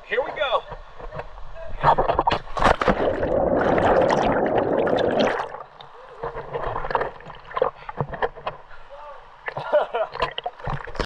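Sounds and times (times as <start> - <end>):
water splashing: 1.8 - 8.5
churning water rushing: 2.7 - 8.1.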